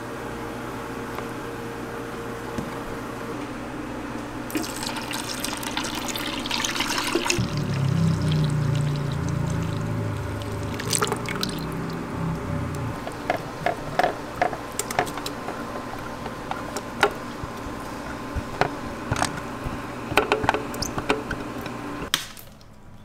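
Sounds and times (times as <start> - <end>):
low steady hum: 4.2 - 22.1
juice pouring into a bowl: 4.5 - 11.9.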